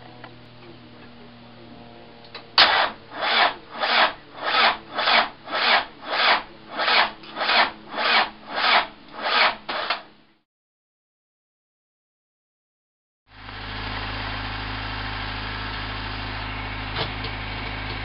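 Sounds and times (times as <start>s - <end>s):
starter motor cranking diesel engine: 2.3s - 10.1s.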